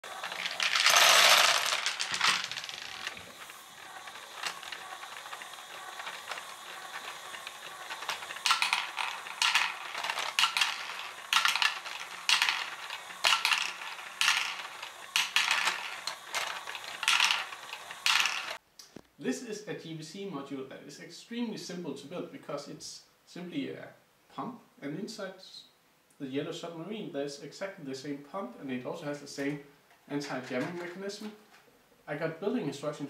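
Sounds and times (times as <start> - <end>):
balls clacking through pump: 0.0 - 18.6, 30.2 - 31.1
faint motor hum: 0.0 - 18.6
plastic balls rattling into hopper: 0.0 - 18.6, 30.2 - 31.3.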